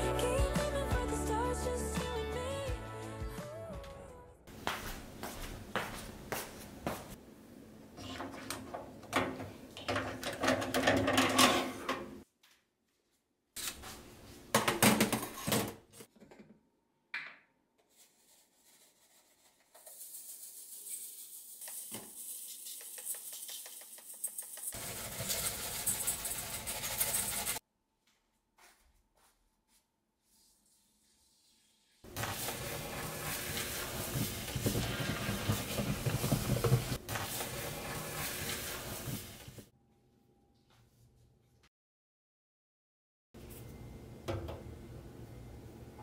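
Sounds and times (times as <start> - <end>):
metal filters clattering: 8.5 - 12.1
sink water hissing: 18.8 - 27.6, 30.8 - 39.7.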